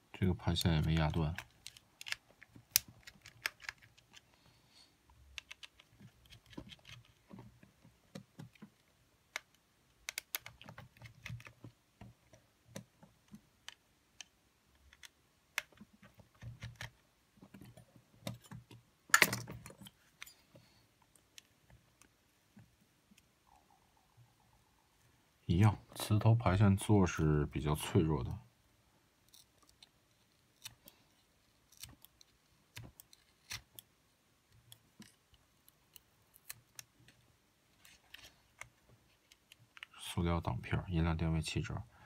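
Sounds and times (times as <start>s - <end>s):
screwdriver clicks and taps: 5.4s - 7.0s.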